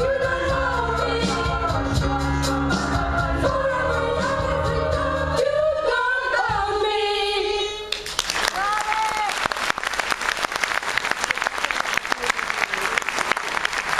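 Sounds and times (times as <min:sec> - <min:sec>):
female gospel choir singing: 0:00.0 - 0:07.8.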